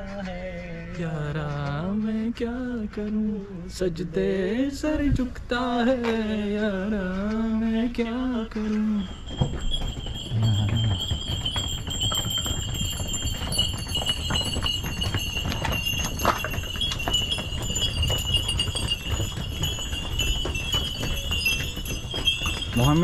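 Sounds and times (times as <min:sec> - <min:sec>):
donkey hooves clopping on stone: 0:08.3 - 0:23.0
steady high-pitched ringing: 0:08.8 - 0:23.0.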